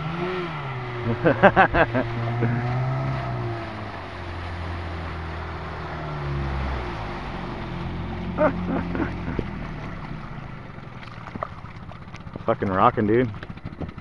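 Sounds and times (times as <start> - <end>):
outboard motor running: 0.0 - 14.0.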